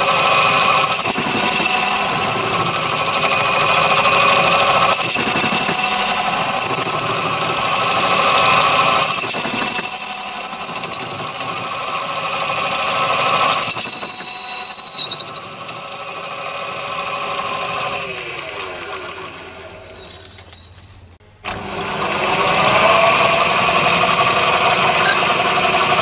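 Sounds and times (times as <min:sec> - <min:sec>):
lathe motor whining: 0:00.0 - 0:19.8, 0:21.5 - 0:26.0
cutting tool squealing: 0:00.7 - 0:07.8, 0:08.8 - 0:12.1, 0:13.4 - 0:16.5.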